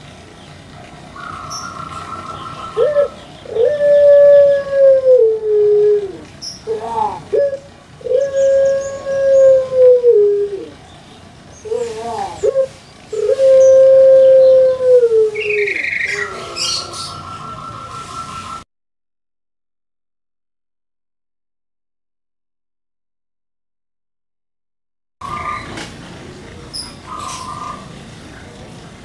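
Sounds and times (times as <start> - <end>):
dove cooing: 1.1 - 10.9, 11.6 - 18.6, 26.5 - 28.7.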